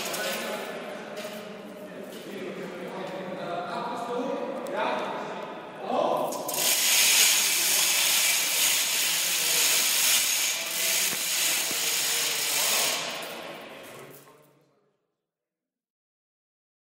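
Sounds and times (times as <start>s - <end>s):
chains rattling through hoist: 6.5s - 14.0s.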